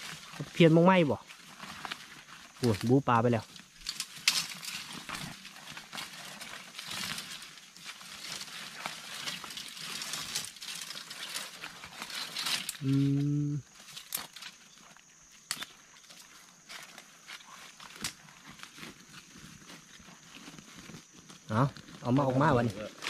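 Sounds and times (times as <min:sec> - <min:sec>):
dry leaves rustling and crackling: 0:00.0 - 0:23.0
twigs snapping: 0:03.6 - 0:14.6, 0:15.4 - 0:15.8.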